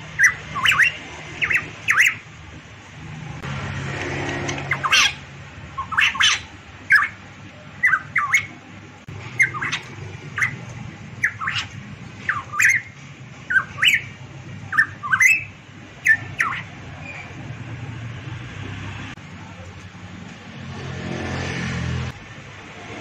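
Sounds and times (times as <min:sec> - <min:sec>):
bird calling sharp notes: 0:00.0 - 0:02.3, 0:04.4 - 0:17.4.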